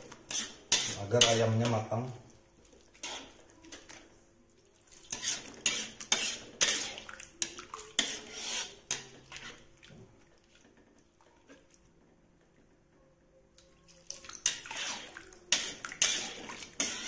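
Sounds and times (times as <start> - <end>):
metal spatula scraping a wok: 0.0 - 1.8, 3.0 - 3.4, 5.1 - 9.7, 14.4 - 17.0.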